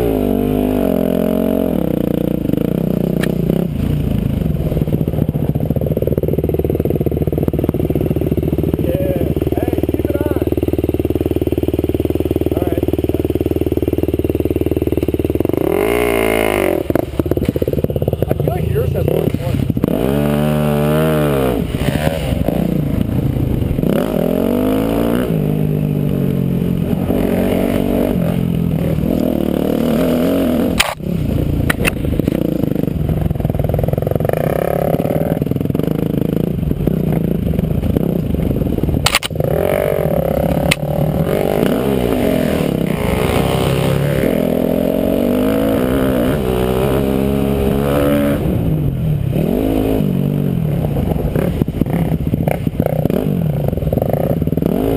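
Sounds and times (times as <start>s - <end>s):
dirt bike engine revving: 0.0s - 54.9s
sharp clicks: 30.7s - 31.0s, 39.0s - 39.4s, 40.6s - 40.9s.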